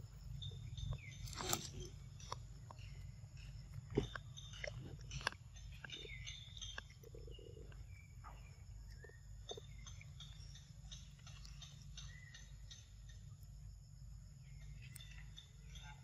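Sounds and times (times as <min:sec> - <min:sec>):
monkey chewing: 0:03.6 - 0:07.9.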